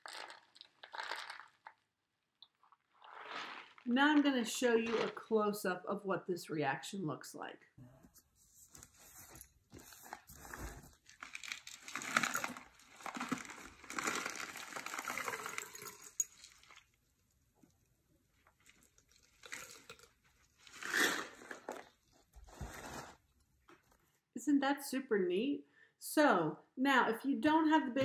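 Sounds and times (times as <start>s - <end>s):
rustling and crinkling: 2.5s - 5.3s, 8.0s - 17.0s, 18.3s - 24.2s.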